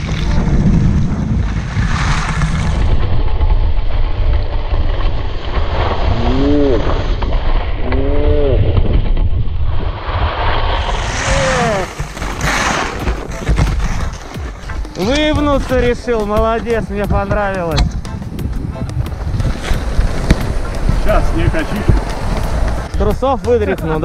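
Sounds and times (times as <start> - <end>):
wind buffeting microphone: 0.0 - 12.4, 13.0 - 23.4.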